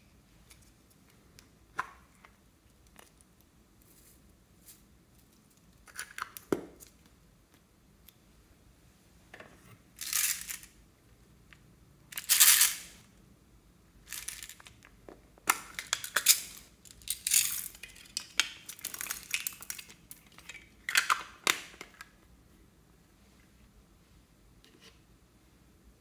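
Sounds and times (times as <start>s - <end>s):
plastic beads rattling in a bottle: 10.0s - 10.8s, 12.1s - 13.0s, 14.0s - 14.8s, 15.8s - 21.0s.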